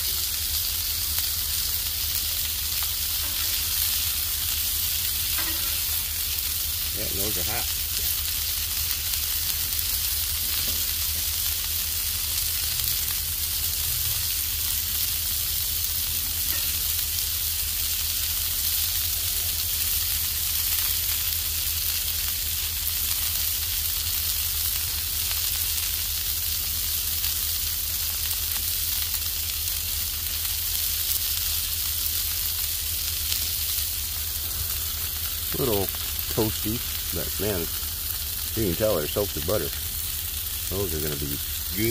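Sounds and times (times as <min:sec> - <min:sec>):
burger patties sizzling on griddle: 0:00.0 - 0:41.9
steady low hum: 0:32.7 - 0:41.9.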